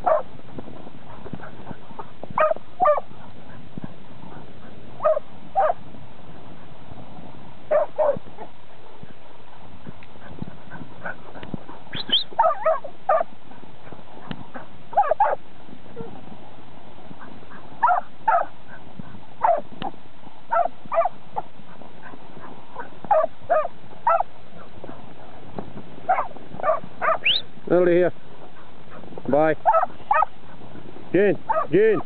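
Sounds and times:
dog barking sharply: 0.0 - 0.2, 2.4 - 3.0, 5.0 - 5.8, 7.7 - 8.2, 12.0 - 13.2, 17.8 - 18.5, 19.4 - 19.6, 20.5 - 21.1, 23.1 - 24.2, 26.1 - 27.4, 29.6 - 30.3, 31.5 - 31.7.

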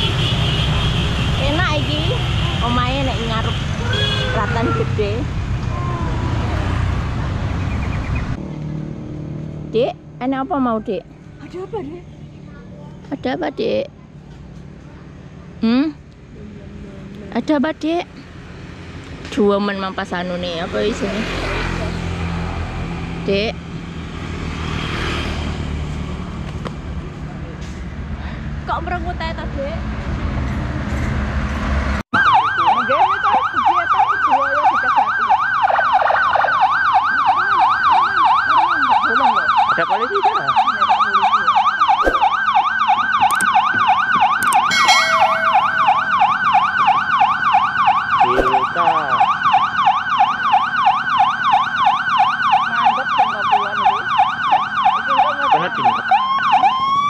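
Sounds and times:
road noise: 0.0 - 57.0
electronic siren yelp: 32.1 - 57.0.

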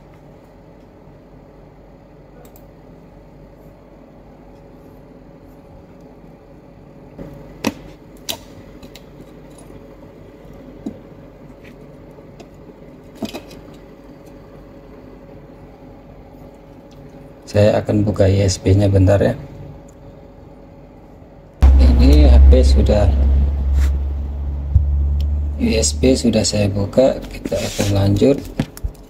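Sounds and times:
steady low hum: 19.6 - 28.4.

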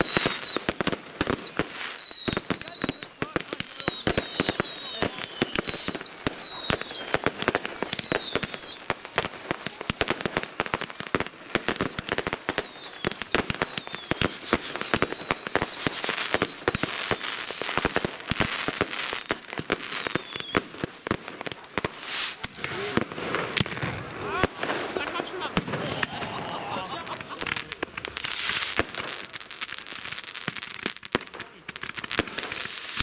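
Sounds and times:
falling firework whistles: 0.0 - 19.2, 19.9 - 20.7, 21.8 - 23.7, 27.2 - 29.3, 32.2 - 33.0
firecrackers crackling: 0.0 - 33.0
firework bangs: 0.0 - 33.0.

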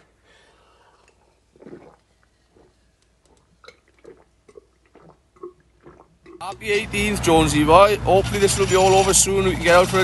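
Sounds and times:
man swallowing drink: 0.9 - 6.4.

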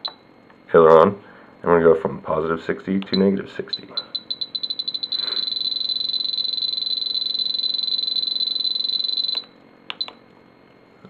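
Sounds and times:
high-pitched transmitter beeps: 3.1 - 10.2.

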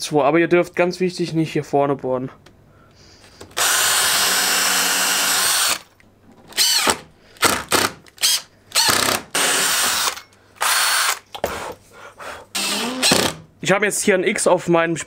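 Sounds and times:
cordless drill drilling wood: 3.5 - 5.8, 6.5 - 11.2, 12.6 - 13.4
impact driver driving screws: 3.5 - 5.8, 6.5 - 11.2, 12.6 - 13.4.

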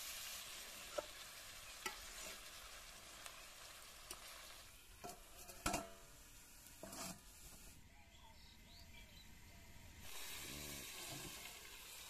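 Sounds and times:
meat and onions sizzling in a wok: 0.0 - 12.0
metal spatula scraping wok: 1.7 - 2.5, 5.0 - 6.1, 6.7 - 7.8.

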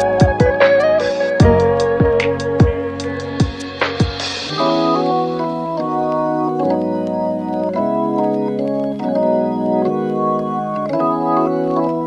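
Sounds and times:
organ-like keyboard chords: 0.0 - 12.0.

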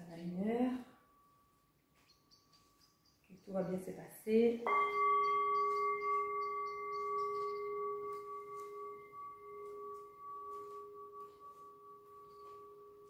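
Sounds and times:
metal singing bowl ringing: 4.6 - 13.0.

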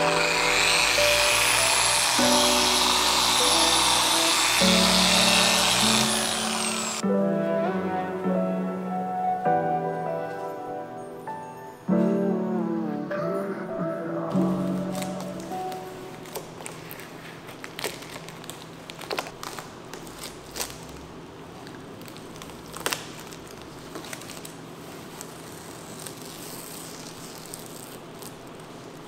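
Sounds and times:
masking tape peeling and crinkling: 0.0 - 7.0, 14.4 - 29.0.

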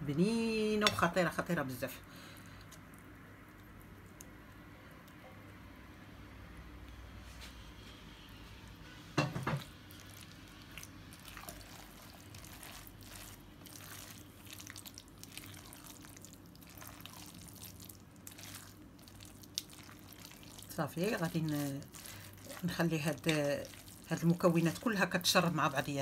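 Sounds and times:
wet squelching of stirred filling: 9.6 - 26.0.

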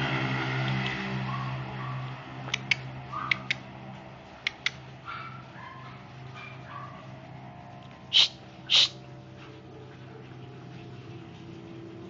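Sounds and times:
sharp clicks: 2.5 - 3.6, 4.4 - 4.8.

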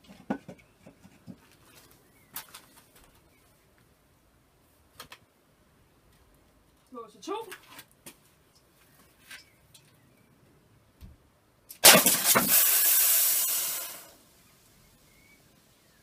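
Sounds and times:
pellet hitting can crack: 11.7 - 12.6
fizzing soda hiss: 11.8 - 14.6.

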